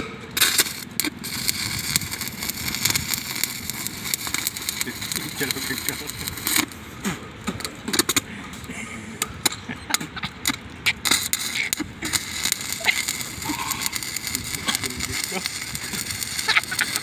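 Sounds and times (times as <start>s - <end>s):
sharp welding pops: 0.0s - 8.3s, 9.2s - 17.0s
welding arc crackling: 0.0s - 17.0s.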